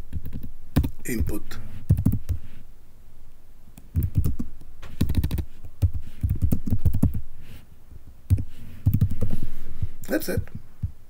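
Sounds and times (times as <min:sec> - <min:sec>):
typing on keyboard: 0:01.9 - 0:02.4, 0:03.9 - 0:07.2.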